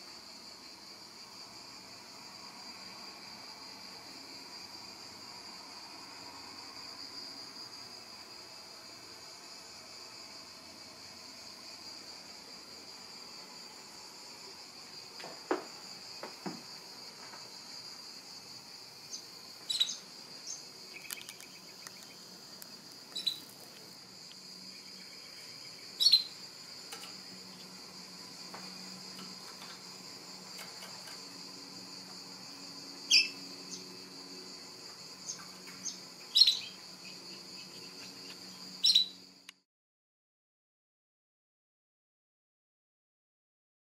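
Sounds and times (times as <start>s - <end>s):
steady high-pitched whine: 0.0s - 39.5s
soft knocks: 15.2s - 17.4s
canary chirps: 19.1s - 22.2s, 23.1s - 23.6s, 24.9s - 26.4s, 33.1s - 33.9s, 35.2s - 37.9s, 38.8s - 39.2s.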